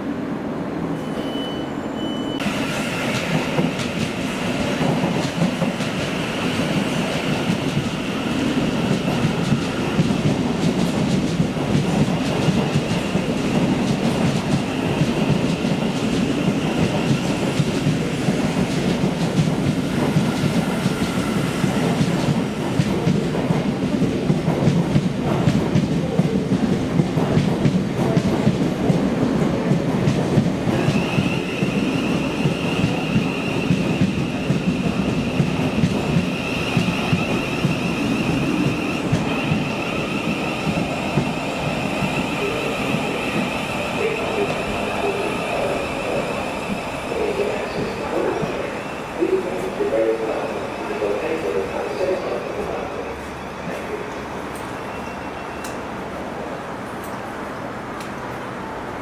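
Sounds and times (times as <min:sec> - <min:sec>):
train rumbling on rails: 0:00.0 - 0:59.0
high squeal: 0:00.9 - 0:03.1, 0:30.8 - 0:35.7, 0:54.7 - 0:55.9.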